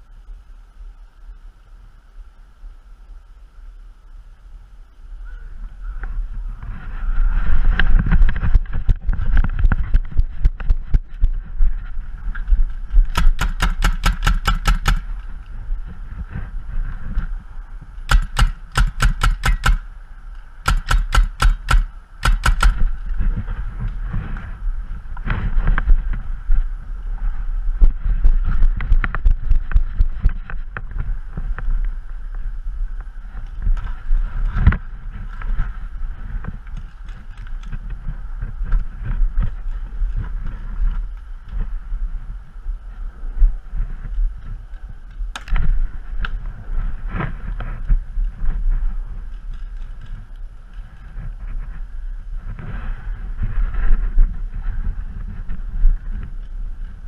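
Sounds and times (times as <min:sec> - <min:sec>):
handling rumble: 0:00.0 - 0:57.0
wind on microphone: 0:01.3 - 0:57.0
paintball marker shots: 0:13.1 - 0:15.1, 0:18.1 - 0:19.9, 0:20.6 - 0:22.9.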